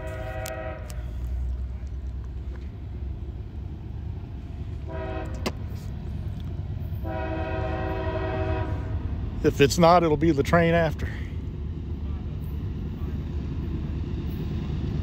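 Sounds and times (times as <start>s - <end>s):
distant locomotive air horn: 0.0s - 1.5s, 4.8s - 5.9s, 7.0s - 9.2s.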